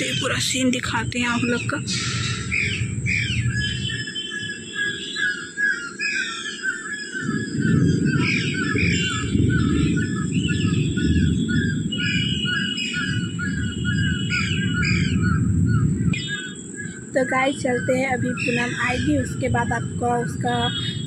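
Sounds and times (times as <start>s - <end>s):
loud low rumbling noise: 0.0s - 5.0s, 7.2s - 21.0s
birds chirping and calling: 0.0s - 21.0s.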